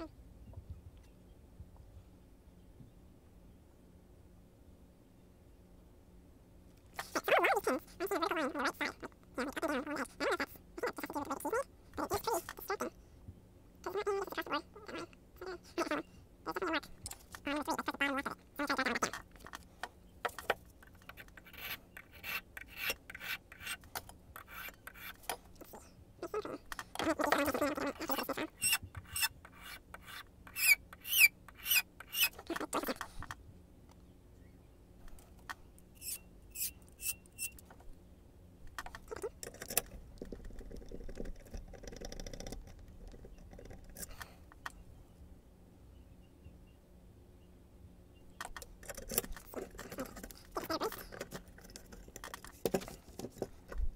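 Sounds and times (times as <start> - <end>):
file rasping on metal key: 21.0 - 23.8, 24.4 - 25.2, 28.0 - 32.4, 36.0 - 37.6
file squealing on metal: 21.0 - 23.8, 24.4 - 25.2, 28.0 - 33.0, 36.0 - 37.6.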